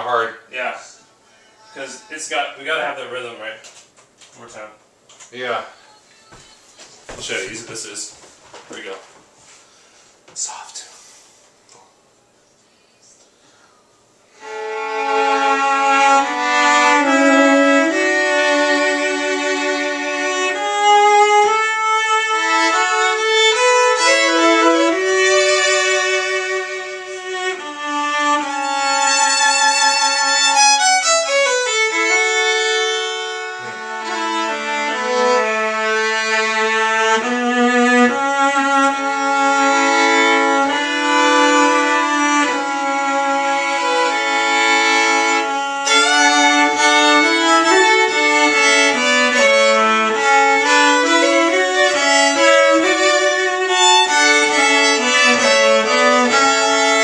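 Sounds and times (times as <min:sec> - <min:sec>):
violin and cello duet: 0:14.3 - 0:57.0.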